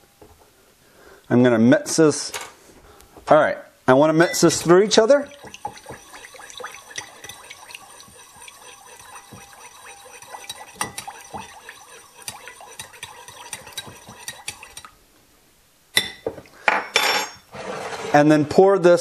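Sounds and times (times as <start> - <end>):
spoon clinking against bowl: 4.2 - 14.9
spoon stirring liquid in bowl: 4.2 - 15.0.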